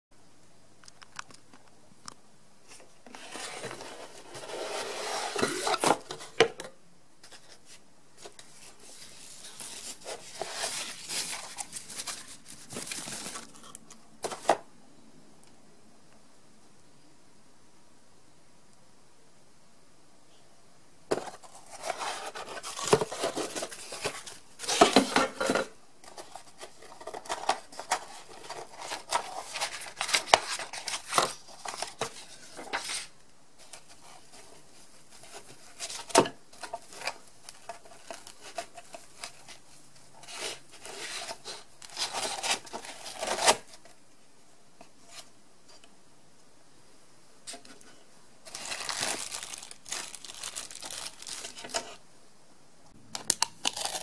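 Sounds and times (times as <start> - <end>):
plastic wrapping rustling: 7.3 - 14.6, 21.1 - 43.9, 48.4 - 52.0.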